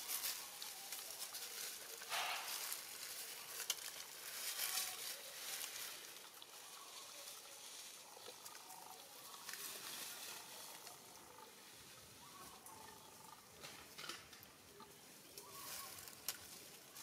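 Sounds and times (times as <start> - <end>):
soft rustles: 0.0 - 6.3.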